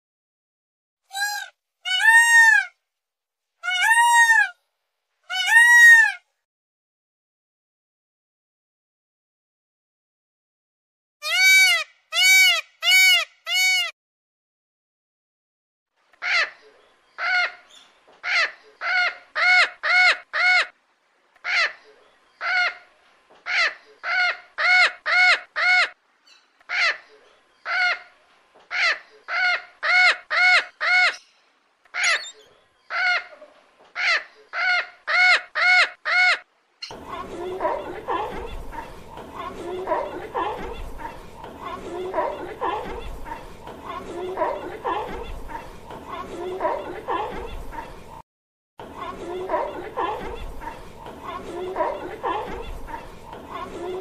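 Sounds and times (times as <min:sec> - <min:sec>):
bird calling loudly: 0:01.1 - 0:02.7, 0:22.4 - 0:37.0.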